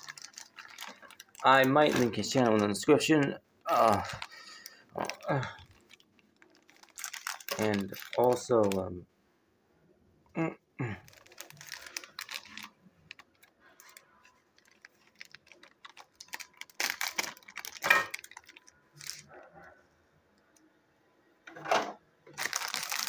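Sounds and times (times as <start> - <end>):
plastic bag rustling: 0.0 - 8.9, 11.0 - 19.4, 22.3 - 23.0.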